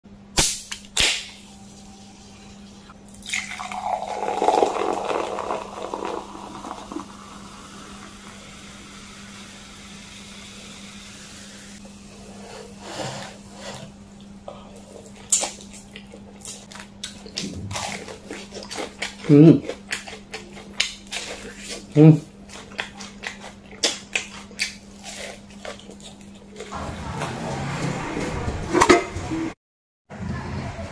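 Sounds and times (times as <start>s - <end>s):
carbonation hissing: 0.5s - 14.0s
cola pouring over ice: 3.1s - 9.6s.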